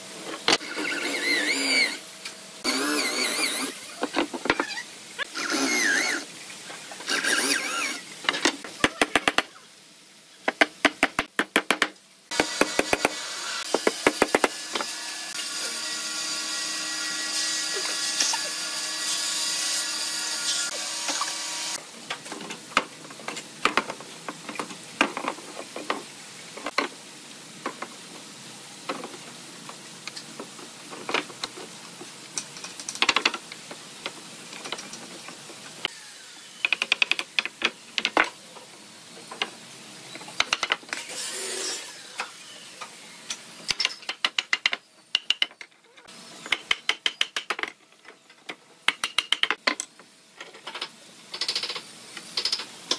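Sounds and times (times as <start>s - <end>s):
power tool whining: 0.6s - 2.0s, 2.6s - 3.8s.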